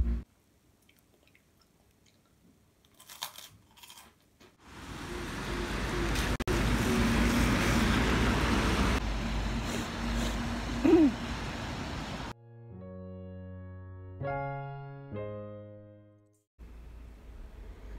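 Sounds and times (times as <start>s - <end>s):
wind: 4.6s - 12.4s.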